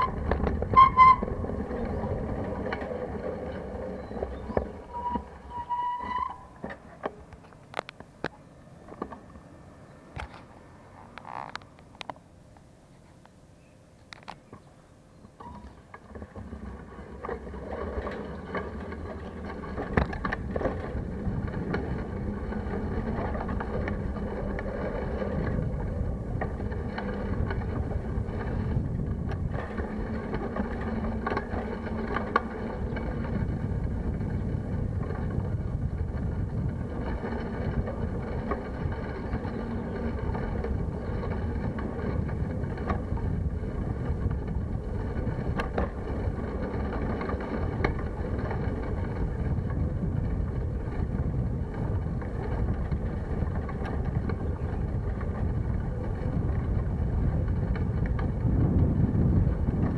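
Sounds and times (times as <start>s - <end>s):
bike knocks and rattles over bumps: 0.0s - 8.1s, 15.3s - 59.9s
bicycle road rumble: 0.0s - 59.9s
wind buffeting microphone: 16.2s - 59.9s.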